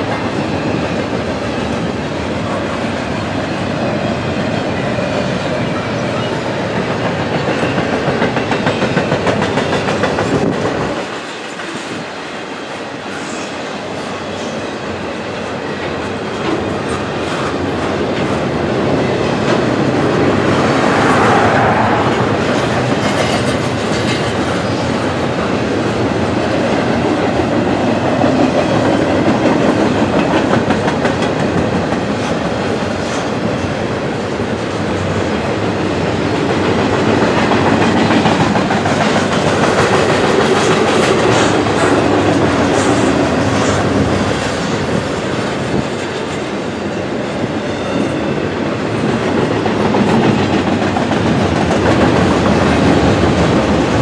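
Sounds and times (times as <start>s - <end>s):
freight train rumbling past: 0.0s - 54.0s
train wheels clattering: 5.8s - 12.1s, 35.1s - 46.6s, 47.3s - 54.0s.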